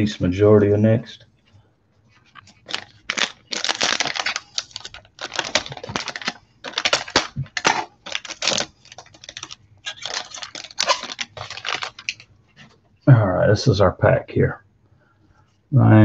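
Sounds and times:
foil pack crinkling and tearing: 2.3s - 12.3s.

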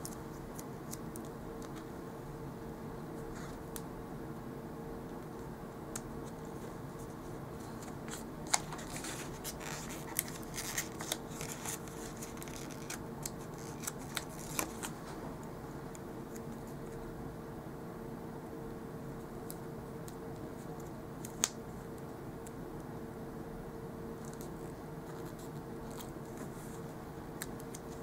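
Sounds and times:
faint steady hum: 0.0s - 28.0s
sticker sheets rustling and crackling: 6.0s - 15.3s.

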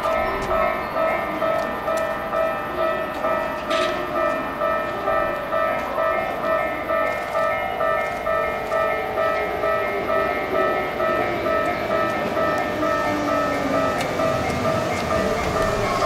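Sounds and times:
electric train running in: 8.6s - 16.0s.

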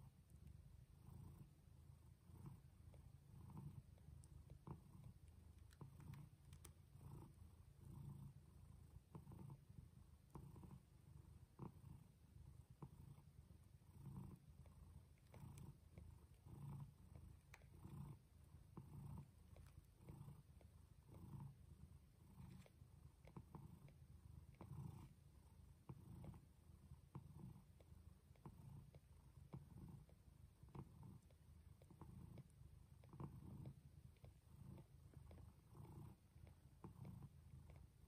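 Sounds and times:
cat purring: 0.0s - 38.0s
faint small clicks: 5.2s - 6.8s.

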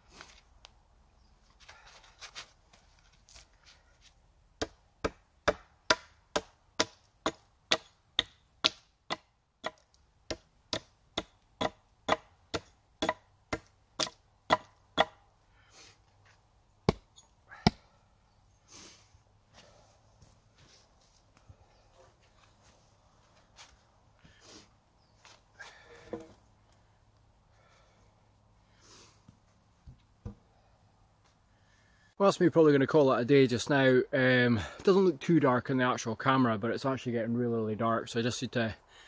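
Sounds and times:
hatchet chopping wood: 4.6s - 15.2s, 16.8s - 17.8s.

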